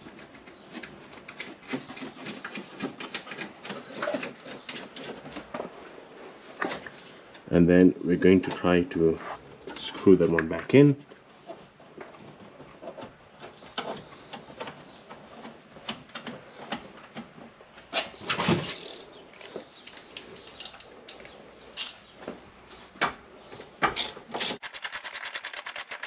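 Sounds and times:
hand tools clicking and knocking: 19.8 - 22.0, 23.8 - 26.0
ratchet wrench clicking: 24.0 - 26.0.

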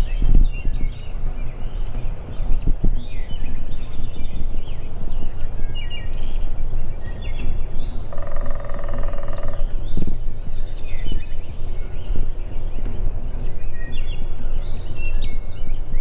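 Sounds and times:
low rumble: 0.0 - 16.0
small birds chirping: 0.0 - 16.0
turkey gobbling: 8.1 - 9.7.

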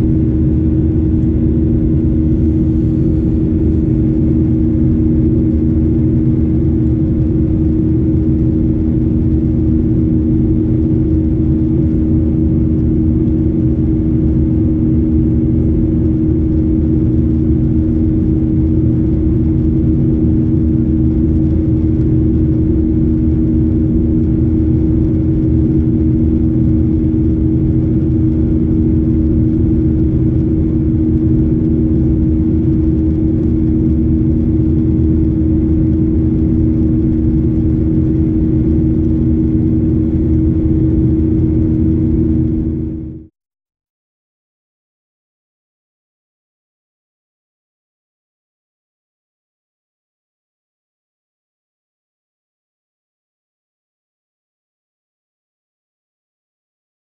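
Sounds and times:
airplane cabin engine drone: 0.0 - 43.3
steady hum tones: 0.0 - 43.3.

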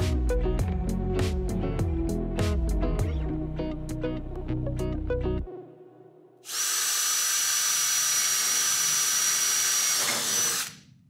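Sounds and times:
cordless drill whining: 6.5 - 10.8.

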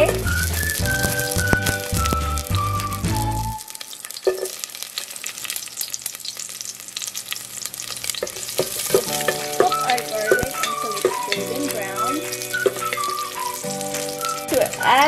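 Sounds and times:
background music: 0.0 - 3.7, 9.0 - 15.0
garlic sizzling in oil: 0.0 - 15.0.

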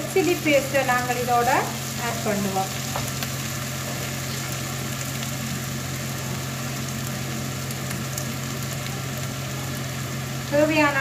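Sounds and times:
constant low hum: 0.0 - 11.0
onions sizzling in oil: 0.0 - 11.0.

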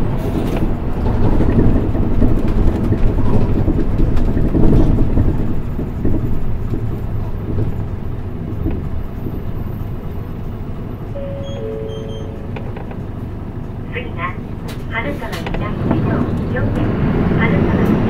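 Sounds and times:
bus engine and road rumble: 0.0 - 18.0
two-note chime: 11.2 - 12.6.

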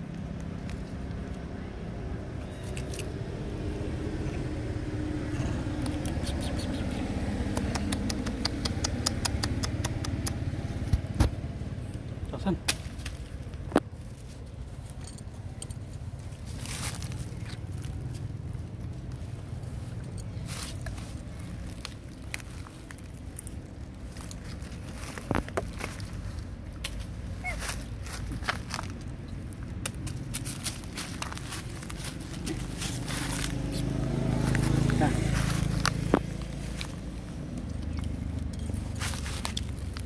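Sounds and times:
steady low hum: 0.0 - 40.0
dry leaves crunching underfoot: 10.4 - 40.0.

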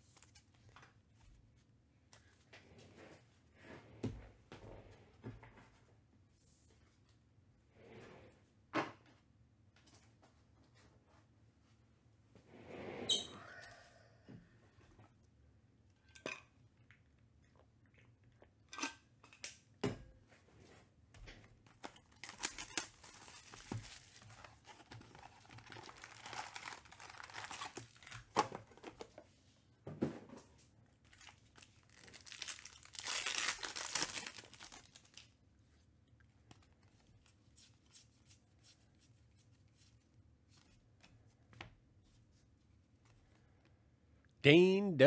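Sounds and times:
wrappers tearing and crinkling: 21.7 - 28.4, 31.1 - 35.4.

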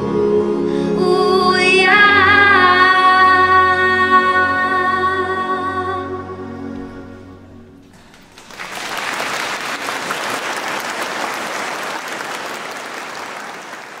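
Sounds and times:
congregation applauding: 7.8 - 14.0.

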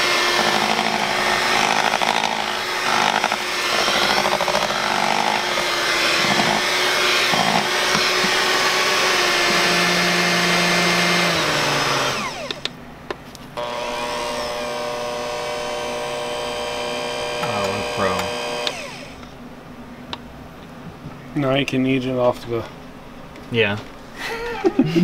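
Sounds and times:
electric mixer motor running: 0.0 - 12.7, 13.6 - 19.2.

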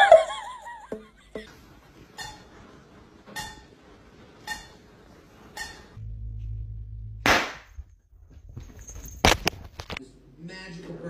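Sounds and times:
low hum: 5.9 - 9.6.

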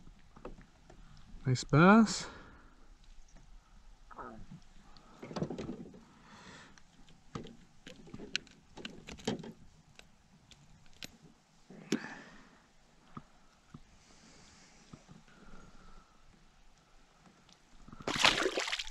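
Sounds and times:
knocks and clicks in a kayak: 5.1 - 6.0, 7.0 - 10.1.

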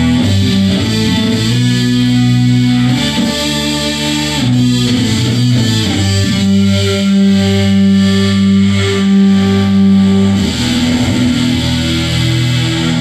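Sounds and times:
electric guitar slow chords: 0.0 - 13.0.

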